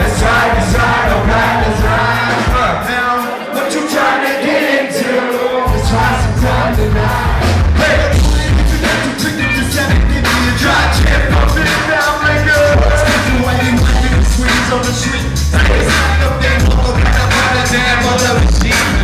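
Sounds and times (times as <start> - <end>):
heavy bass and drums: 0.0 - 3.0, 5.7 - 19.0
live band playing: 0.0 - 4.2, 5.0 - 19.0
person singing: 0.0 - 19.0.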